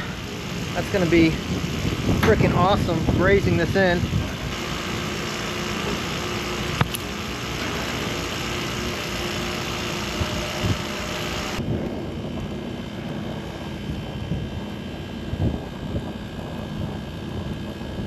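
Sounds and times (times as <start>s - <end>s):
wind buffeting microphone: 0.2s - 4.6s, 11.6s - 18.0s.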